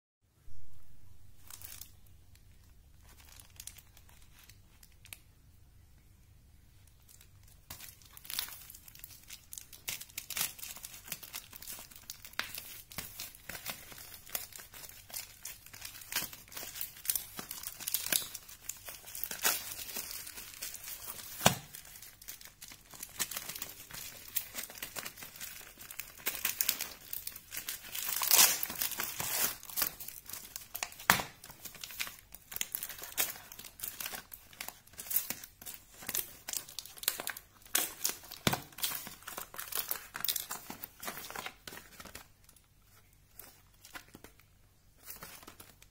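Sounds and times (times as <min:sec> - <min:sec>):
plastic bag crinkling and tearing: 0:01.2 - 0:05.2, 0:06.9 - 0:45.9
scissors cutting plastic bag: 0:07.7 - 0:42.0.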